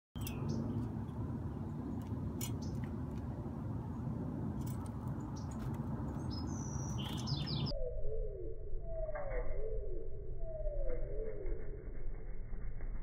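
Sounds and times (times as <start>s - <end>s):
small birds chirping: 0.2s - 7.7s.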